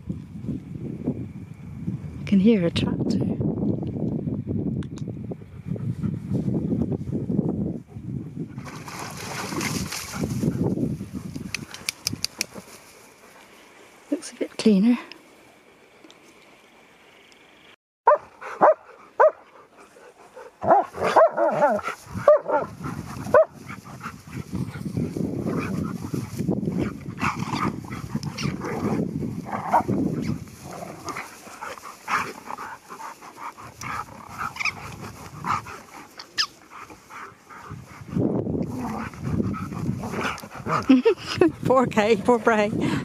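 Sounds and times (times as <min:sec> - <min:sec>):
dogs play growling: 0:07.9 - 0:11.8, 0:18.4 - 0:43.0
dogs barking: 0:18.1 - 0:19.5, 0:20.6 - 0:23.9.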